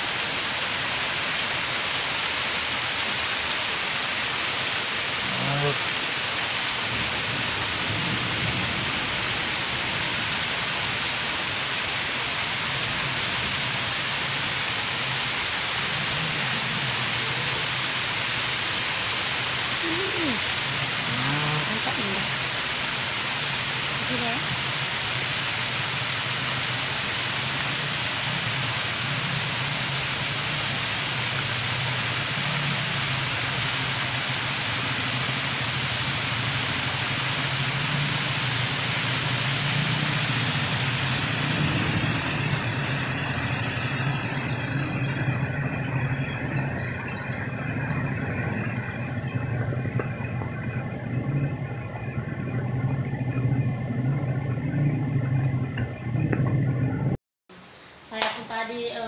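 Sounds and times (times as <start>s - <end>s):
heavy rain pouring: 0.0s - 59.0s
low rumble: 40.0s - 57.2s.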